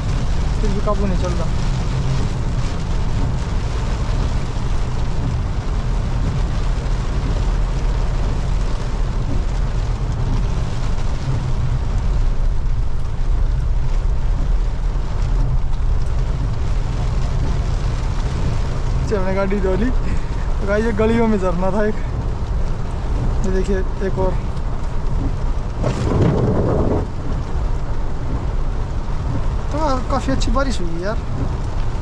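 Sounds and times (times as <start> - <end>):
engine and road rumble: 0.0 - 32.0
rain and water hissing: 0.0 - 32.0.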